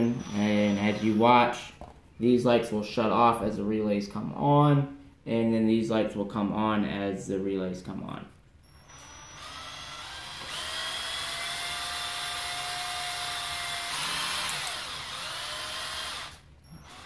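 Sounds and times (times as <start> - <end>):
power drill whirring: 0.0 - 1.4, 8.6 - 17.0.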